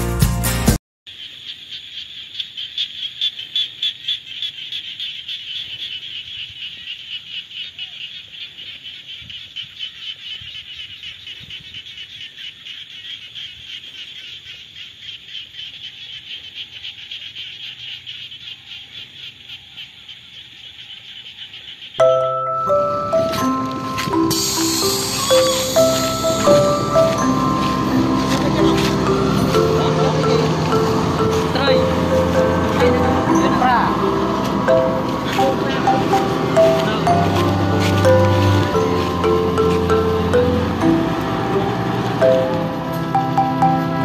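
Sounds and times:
chorus of frogs trilling: 1.1s - 43.7s.

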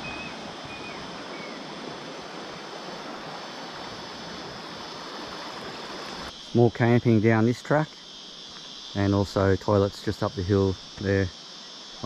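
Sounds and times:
creek water running: 0.0s - 7.9s
high insect drone: 0.0s - 12.0s.

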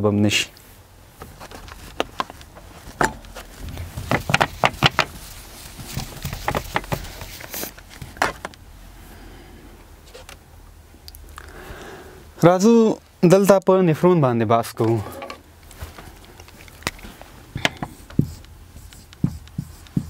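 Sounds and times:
eraser wiping whiteboard: 17.9s - 20.0s.

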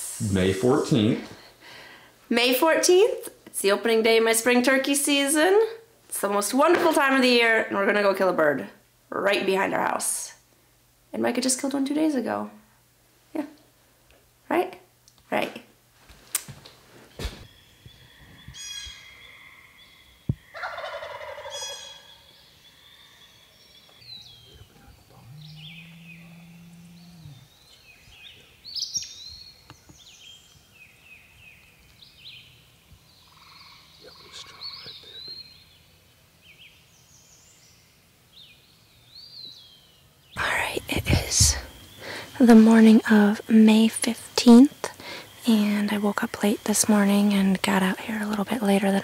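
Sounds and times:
low steady hum: 0.0s - 49.0s
songbirds chirping: 17.0s - 49.0s
turkey gobbling: 20.4s - 22.2s.

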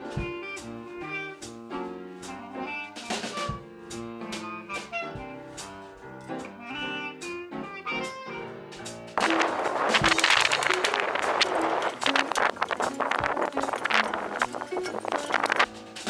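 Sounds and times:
instrumental music with drum beat: 0.0s - 16.0s.

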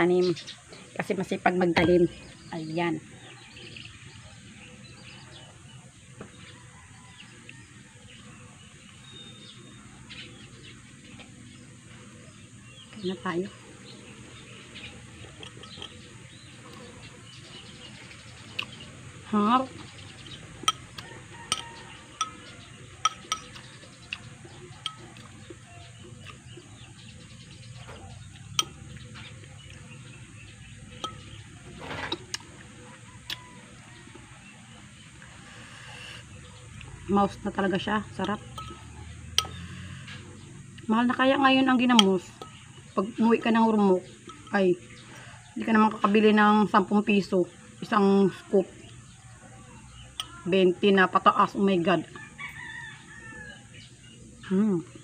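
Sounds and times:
birds chirping: 0.0s - 55.0s
fork clinking on glass bowl: 15.4s - 16.0s, 20.6s - 23.7s, 24.8s - 25.3s, 31.0s - 31.4s, 38.2s - 39.8s, 44.2s - 44.6s.

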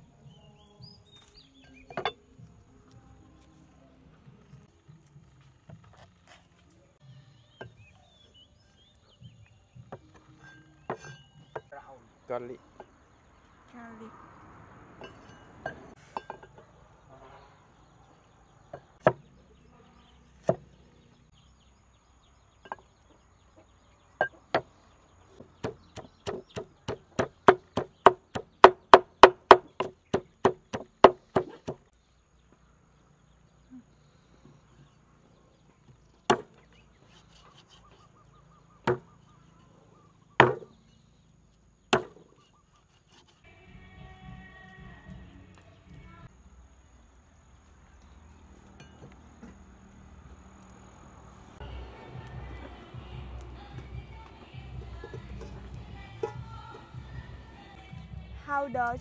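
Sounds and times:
cleaver chopping on wooden board: 25.4s - 31.8s, 36.3s - 36.6s, 38.9s - 39.1s, 40.4s - 40.7s, 41.9s - 42.3s
pestle pounding in wooden mortar: 25.4s - 31.8s, 41.9s - 42.2s.

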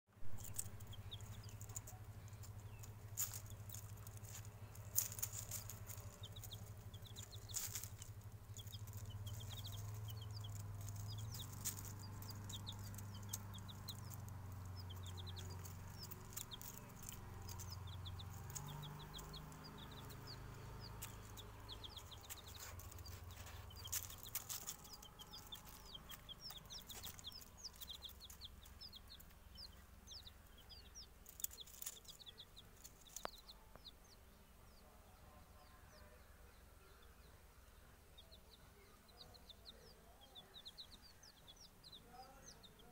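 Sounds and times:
chicks peeping: 0.2s - 42.9s
rustling dry leaves: 0.3s - 33.7s
steady low hum: 0.6s - 33.2s.

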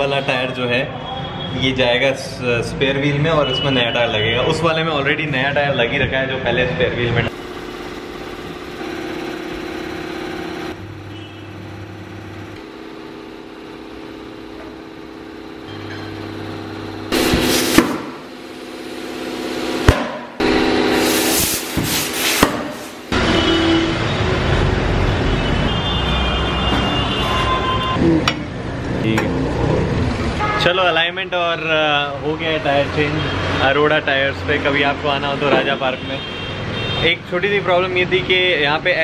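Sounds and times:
machine motor humming: 7.3s - 23.2s
workshop clatter: 12.5s - 18.5s, 19.8s - 23.5s, 26.6s - 29.4s, 35.4s - 36.0s
compressed air hissing: 17.1s - 18.8s, 20.9s - 23.1s.

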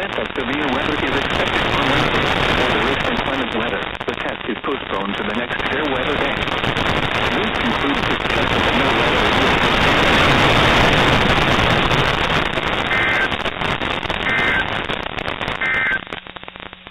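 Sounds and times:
radio static hiss: 0.0s - 16.9s
two-tone digital data warbles: 12.9s - 13.4s, 14.2s - 14.8s, 15.6s - 16.1s.

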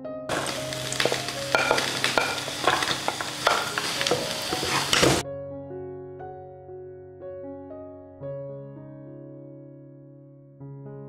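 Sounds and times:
soft piano music: 0.0s - 11.0s
hot oil sizzling in a pot: 0.3s - 5.2s
wooden spatula scraping pan: 0.3s - 5.2s.

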